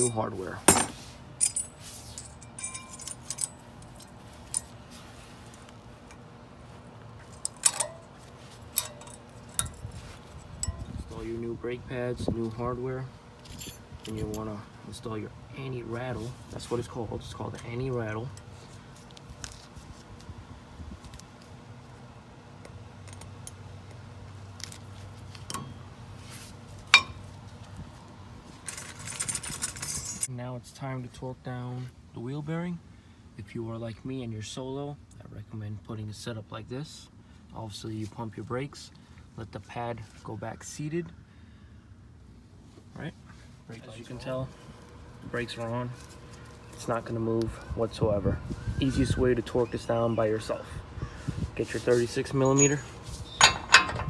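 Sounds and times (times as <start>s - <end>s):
sharp metallic clink: 0.0s - 3.6s
rustling scrape: 0.6s - 3.3s, 3.9s - 5.7s, 8.0s - 10.5s, 26.1s - 27.7s, 51.3s - 53.7s.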